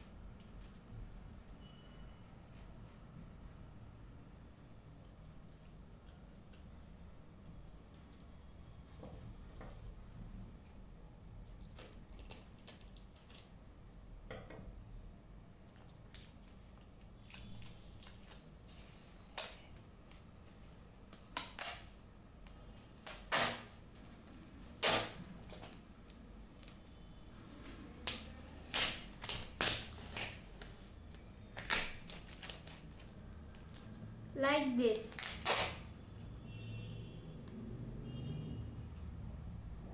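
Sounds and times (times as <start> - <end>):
sticky tape crackling: 11.4 - 13.5, 15.7 - 34.1, 35.0 - 36.1.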